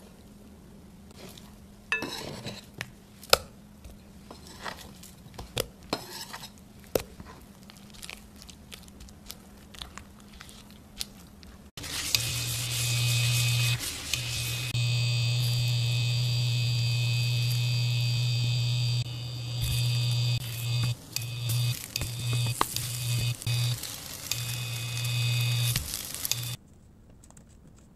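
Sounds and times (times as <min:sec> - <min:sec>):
induction cooktop humming: 0:11.8 - 0:26.6.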